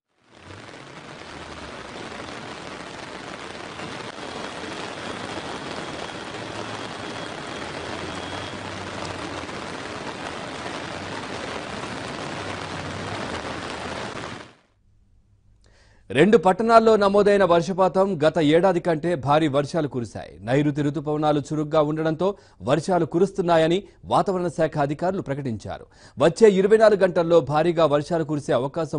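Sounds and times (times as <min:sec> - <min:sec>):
heavy rain pouring on street: 0:00.1 - 0:14.7
vehicle engines humming: 0:05.8 - 0:10.5.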